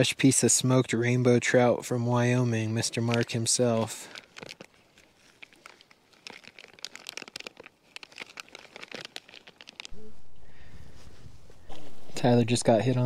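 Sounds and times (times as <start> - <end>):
plastic bag crinkling: 2.8 - 12.3
low rumble: 9.9 - 13.0.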